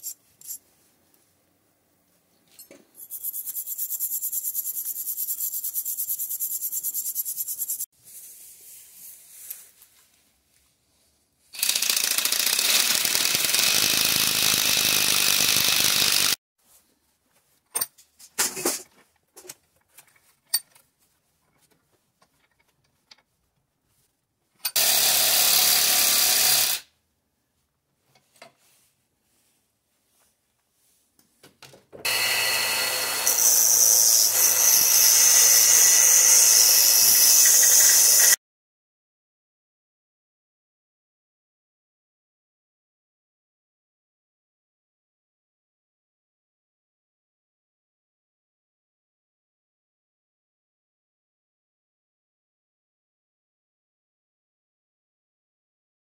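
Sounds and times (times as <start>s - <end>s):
handheld power tool grinding metal: 11.6s - 16.4s, 24.6s - 26.9s, 32.0s - 38.4s.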